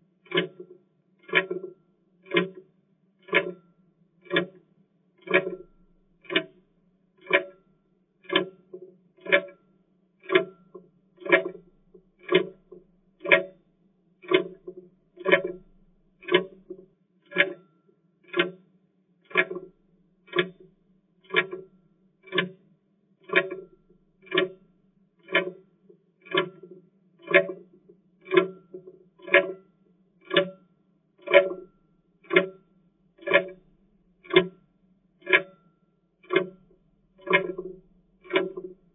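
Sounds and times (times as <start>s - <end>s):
clock ticking: 0.2s - 0.6s, 1.2s - 2.6s, 3.2s - 3.6s, 4.2s - 4.6s, 5.2s - 6.6s, 7.2s - 7.6s, 9.2s - 9.6s, 10.2s - 10.6s, 11.2s - 13.6s, 14.2s - 17.6s, 18.2s - 18.6s, 19.3s - 22.6s, 23.2s - 25.6s, 26.2s - 29.6s, 30.3s - 30.6s, 31.2s - 32.6s, 33.2s - 35.6s, 36.2s - 38.9s.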